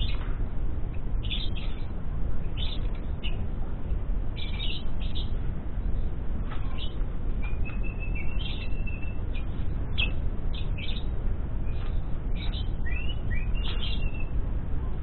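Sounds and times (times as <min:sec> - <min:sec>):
steady low rumble: 0:00.0 - 0:15.0
lovebird chirping: 0:06.6 - 0:14.3.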